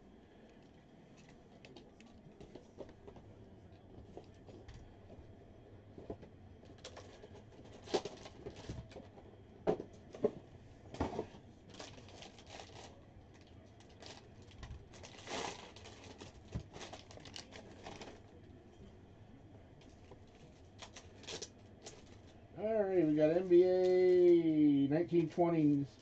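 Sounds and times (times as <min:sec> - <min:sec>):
wrappers crinkling and rustling: 0:06.8 - 0:09.0, 0:11.6 - 0:18.4, 0:20.2 - 0:22.4.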